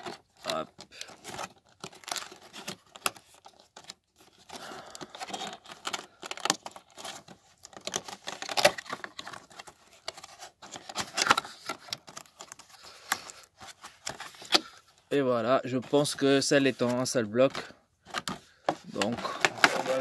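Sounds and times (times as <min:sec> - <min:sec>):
cardboard box rustling and scraping: 0:18.1 - 0:20.0.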